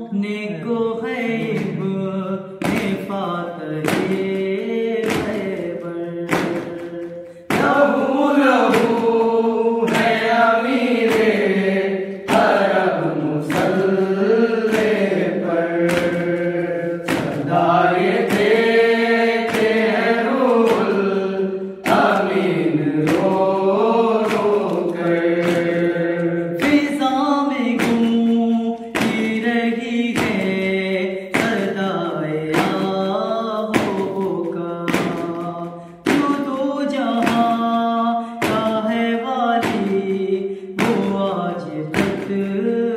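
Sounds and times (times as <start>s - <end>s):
rhythmic hand strikes: 0.0s - 42.9s
men chanting in unison: 0.7s - 5.8s, 6.5s - 34.4s.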